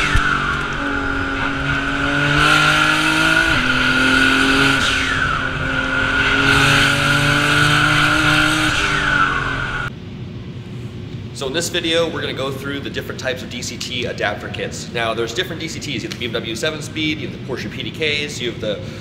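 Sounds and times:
race car engine accelerating: 0:00.0 - 0:09.9.

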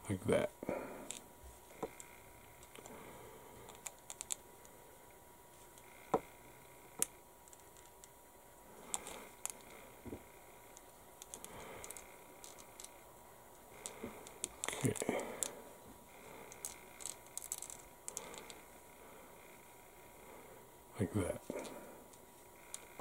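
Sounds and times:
plastic parts clicking: 0:03.7 - 0:04.4, 0:08.9 - 0:09.8, 0:10.7 - 0:13.0, 0:16.5 - 0:18.6.

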